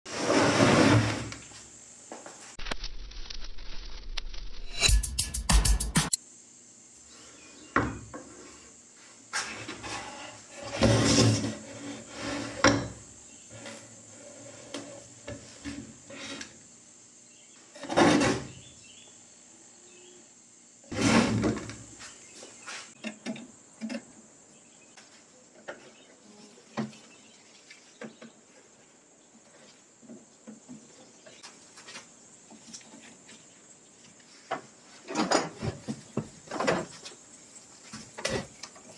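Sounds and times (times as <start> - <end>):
metal and wood knocks and scrapes: 9.4 - 16.5, 17.7 - 18.6, 20.9 - 22.1, 34.5 - 37.0, 37.9 - 38.9.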